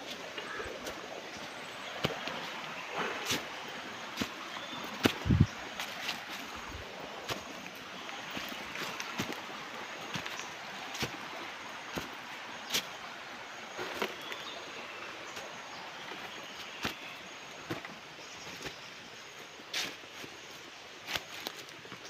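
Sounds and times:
footsteps crunching dry leaves: 0.0 - 12.9
creek water running: 0.0 - 22.0.

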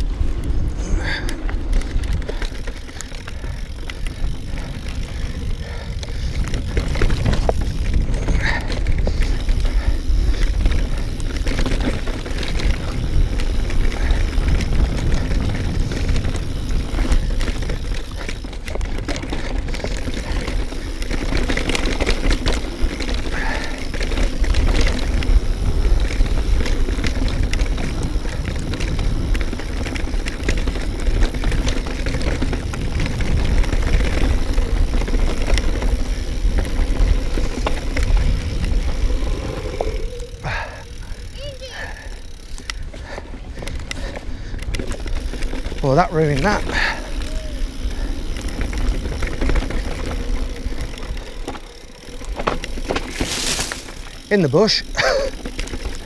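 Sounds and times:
wind rushing over microphone: 0.0 - 20.4, 24.4 - 45.8
bike tyre and trail noise: 0.0 - 56.0.

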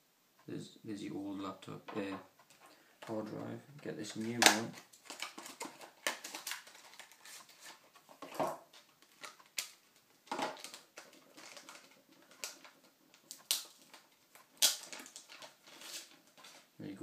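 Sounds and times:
plastic packaging crinkling: 4.0 - 16.8.

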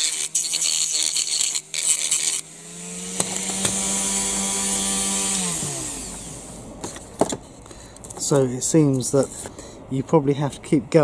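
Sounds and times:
rotary tool grinding plastic: 0.0 - 7.1
rotary tool whining: 0.0 - 8.1.

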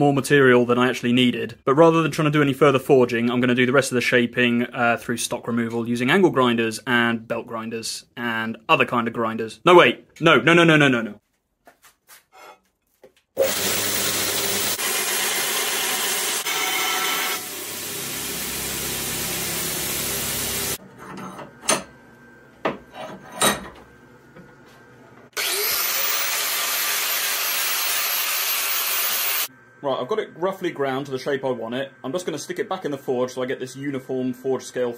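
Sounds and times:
angle grinder grinding steel: 13.4 - 20.8, 25.4 - 29.5
belt grinder grinding steel: 13.4 - 20.8, 25.4 - 29.5.

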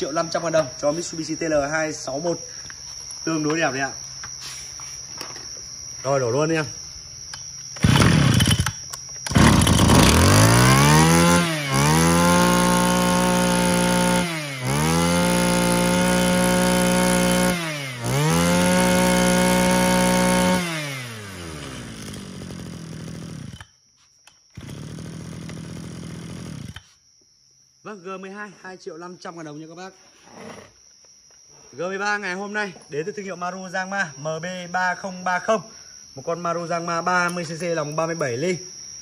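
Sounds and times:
brush cutter engine revving: 7.8 - 23.7, 24.6 - 26.9.

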